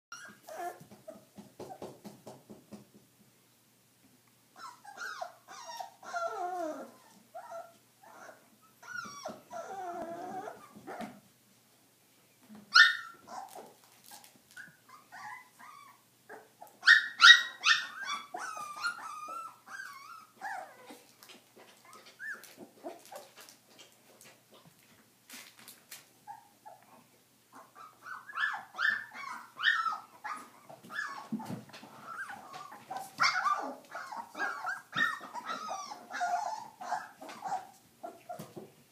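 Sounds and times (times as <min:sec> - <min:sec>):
puppies whimpering yipping and growling: 0:00.1 - 0:01.2, 0:04.6 - 0:11.2, 0:12.7 - 0:23.5, 0:27.6 - 0:38.7.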